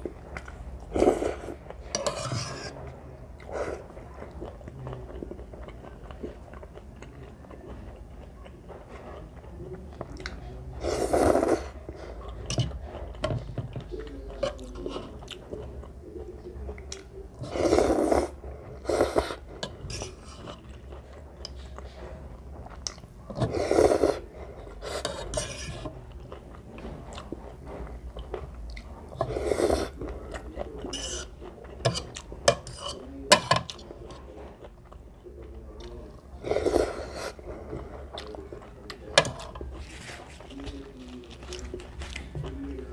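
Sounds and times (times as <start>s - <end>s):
person chewing: 0.0s - 2.4s, 3.4s - 42.9s
person slurping noodles: 10.8s - 11.8s, 17.4s - 20.5s, 23.4s - 25.7s, 29.2s - 30.0s, 36.4s - 37.8s.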